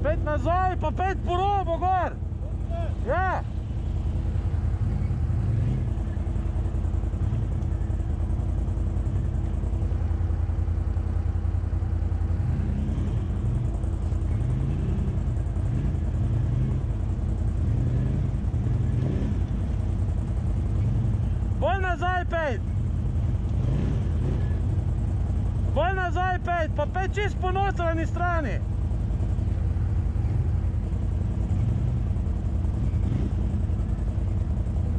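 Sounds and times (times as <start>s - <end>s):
quad engine idling: 0.0s - 34.9s
quad engine revving: 4.5s - 6.1s, 23.5s - 24.7s.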